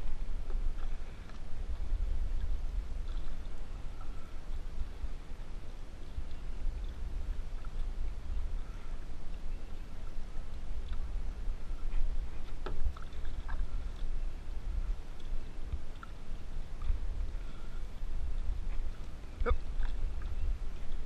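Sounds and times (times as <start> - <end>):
paddles dipping through water: 0.0 - 21.0
wind rumble on microphone: 0.0 - 21.0.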